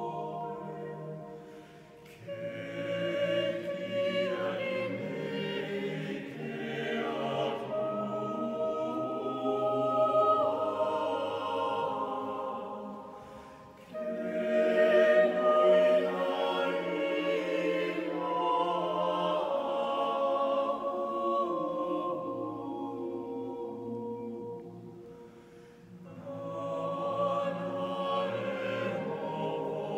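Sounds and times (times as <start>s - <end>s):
choir singing unaccompanied: 0.0s - 29.9s.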